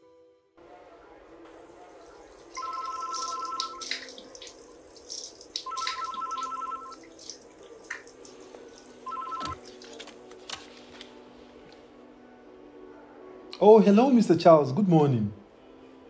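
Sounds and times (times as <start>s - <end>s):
telephone ringing two-tone warble: 2.6s - 3.8s, 5.7s - 7.0s, 9.0s - 9.6s.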